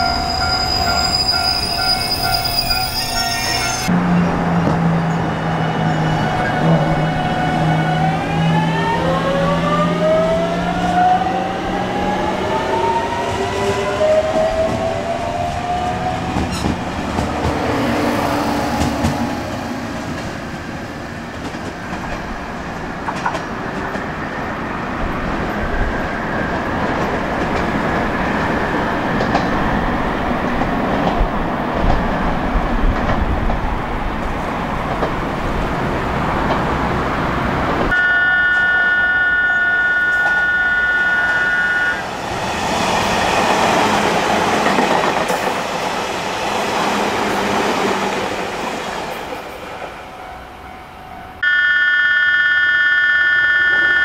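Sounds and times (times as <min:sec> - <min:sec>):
train cars rumbling on rails: 0:00.0 - 0:37.9, 0:40.1 - 0:51.4.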